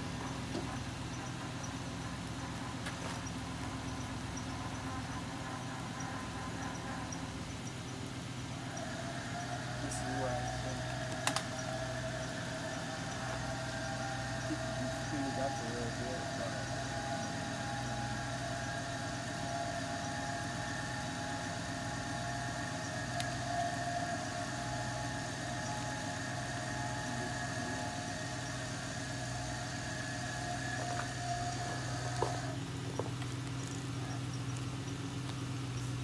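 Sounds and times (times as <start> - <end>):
crane motor whining: 0.0 - 36.0
clicks: 11.1 - 11.5.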